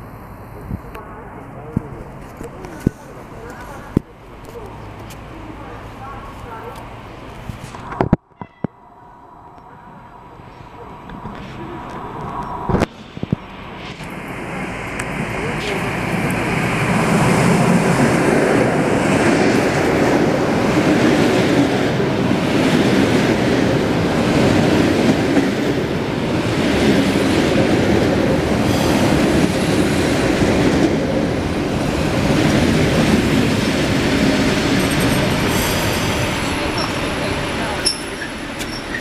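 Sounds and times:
faint high squeals: 0:08.3 - 0:09.8, 0:37.8 - 0:39.0
train wheels rumbling on rail: 0:09.6 - 0:39.0.

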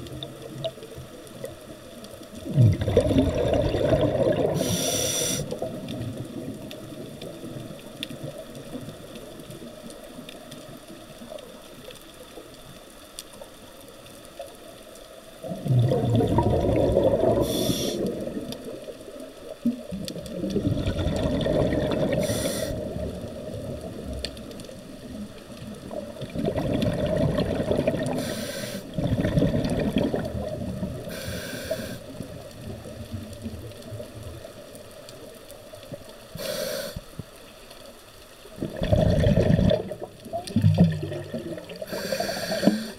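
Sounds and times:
bubbling exhaled air: 0:02.4 - 0:06.7, 0:15.4 - 0:18.9, 0:19.7 - 0:24.3, 0:25.8 - 0:33.7, 0:38.5 - 0:42.9
regulator hissing inhalations: 0:04.6 - 0:05.6, 0:17.4 - 0:18.2, 0:22.2 - 0:22.8, 0:28.2 - 0:28.9, 0:31.1 - 0:32.1, 0:36.4 - 0:37.1, 0:41.9 - 0:42.9.

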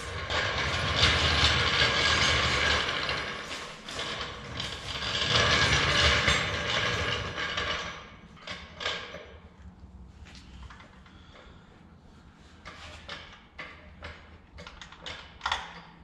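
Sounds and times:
floor jack rolling on concrete: 0:00.0 - 0:09.4
metal wheels and frame rattling: 0:00.0 - 0:09.5.

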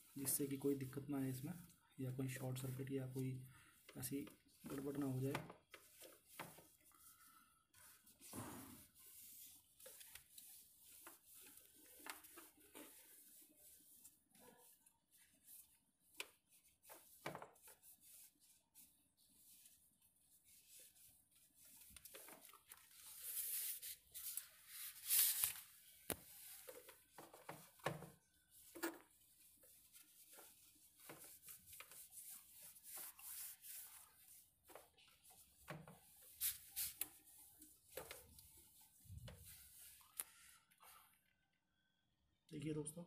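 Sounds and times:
hand rubbing plastic surface: 0:20.4 - 0:40.2.

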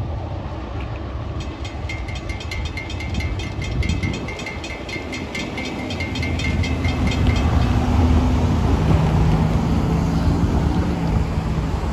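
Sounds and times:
car engines running: 0:00.6 - 0:11.9
railroad crossing bell ringing: 0:01.3 - 0:09.3.

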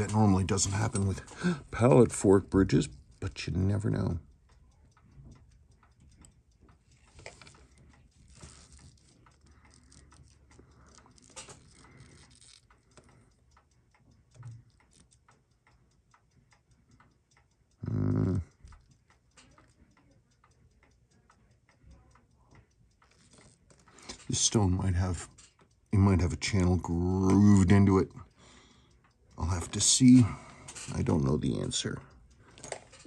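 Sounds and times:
clock ticking rapidly: 0:00.0 - 0:33.0
person humming: 0:17.8 - 0:18.5.

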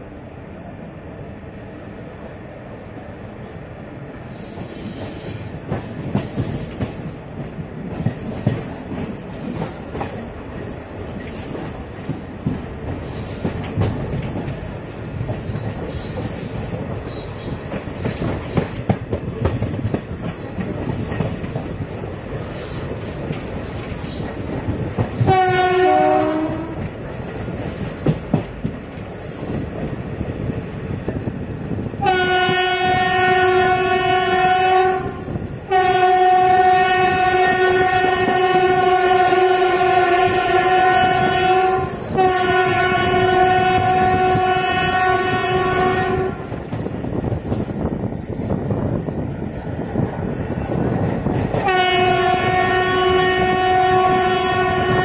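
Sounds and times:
train rumble: 0:00.0 - 0:55.0
locomotive horn: 0:25.2 - 0:26.8, 0:32.0 - 0:46.5, 0:51.6 - 0:55.0.

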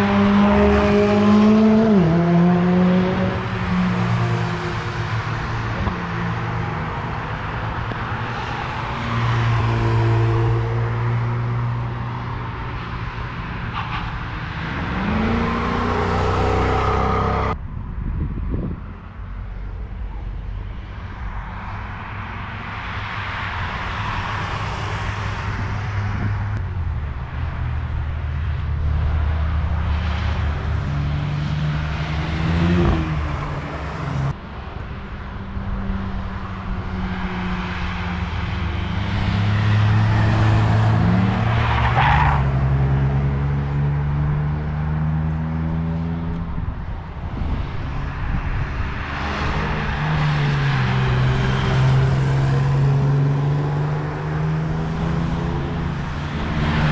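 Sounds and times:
race cars passing: 0:00.0 - 0:17.6, 0:20.1 - 0:56.9.

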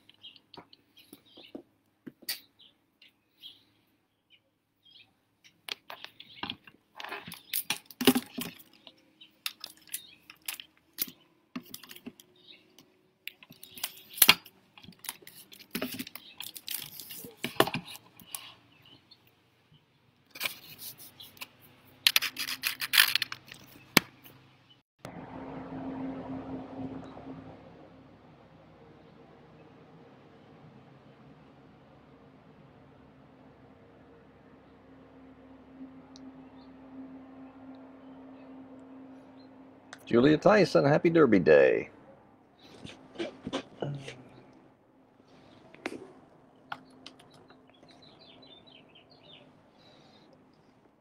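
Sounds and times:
low hum: 0:21.7 - 0:51.0.

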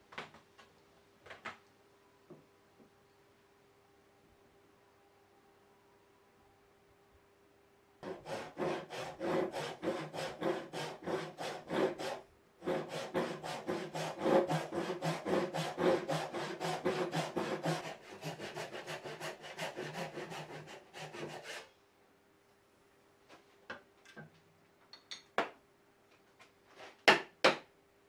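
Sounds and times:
hand saw cutting wood: 0:08.0 - 0:21.7.

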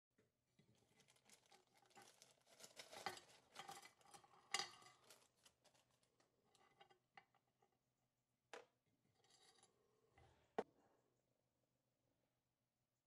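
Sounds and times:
plastic bag crinkling: 0:00.7 - 0:04.0.

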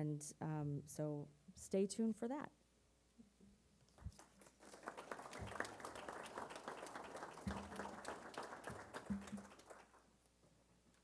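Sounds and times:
audience applauding: 0:03.9 - 0:10.1.

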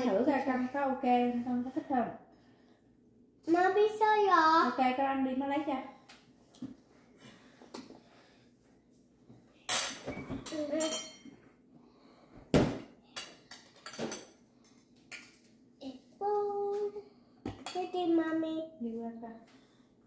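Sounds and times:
cutlery and dishes clinking: 0:09.7 - 0:11.4, 0:13.1 - 0:15.5.

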